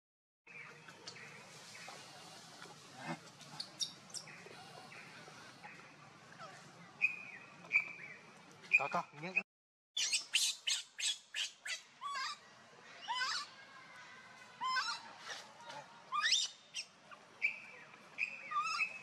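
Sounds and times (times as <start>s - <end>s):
animal chirps: 10.0s - 12.4s, 16.1s - 17.6s, 18.2s - 19.0s.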